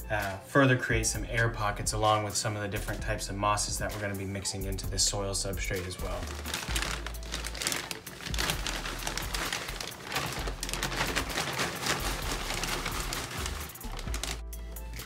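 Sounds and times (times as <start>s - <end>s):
shavings pouring onto soil: 5.8s - 14.5s
plastic bag crinkling: 5.9s - 15.0s.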